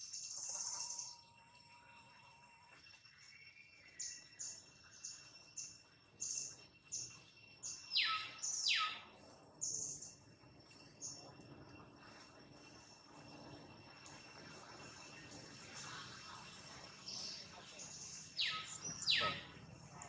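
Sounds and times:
faint high hum: 0.1s - 20.0s
bird chirping: 3.2s - 11.4s, 14.9s - 20.0s
descending bird calls: 4.0s - 10.2s, 15.2s - 20.0s.

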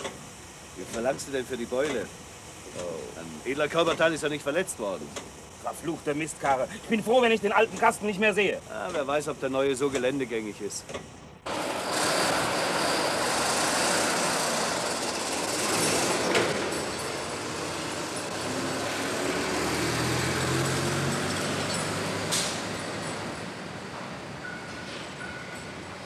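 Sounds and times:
diesel truck engine running: 11.2s - 24.5s.

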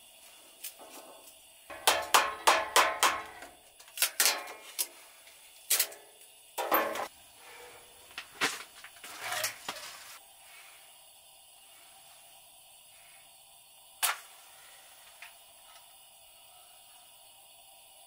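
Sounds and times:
metal cookware clanking: 1.7s - 4.9s, 5.7s - 7.1s.

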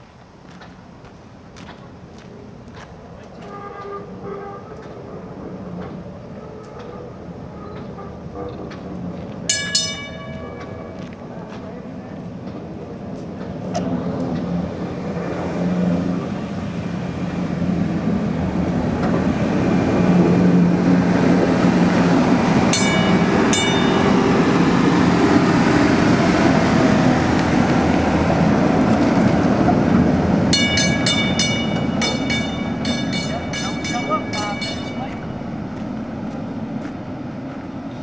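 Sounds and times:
streetcar motors and wheels humming: 0.0s - 38.0s
streetcar gong clanging: 9.5s - 11.6s, 18.2s - 38.0s.

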